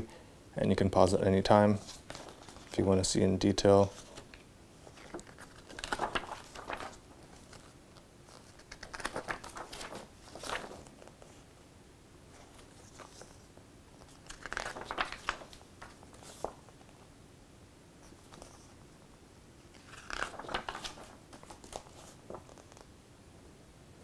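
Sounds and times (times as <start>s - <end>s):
paper pages rustling: 1.7s - 2.9s, 3.7s - 11.4s, 12.3s - 17.1s, 18.0s - 18.8s, 19.7s - 22.9s.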